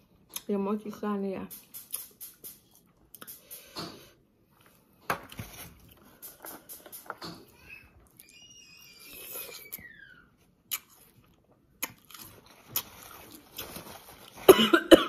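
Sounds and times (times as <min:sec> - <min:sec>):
fruit crunching while chewed: 0:10.6 - 0:14.4
person coughing into tissue: 0:14.3 - 0:15.0.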